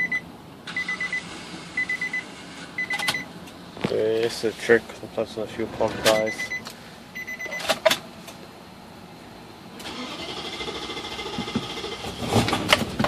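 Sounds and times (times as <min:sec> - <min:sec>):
car warning chime: 0:00.0 - 0:01.2, 0:06.1 - 0:07.7
engine cranking and starting: 0:09.8 - 0:13.0.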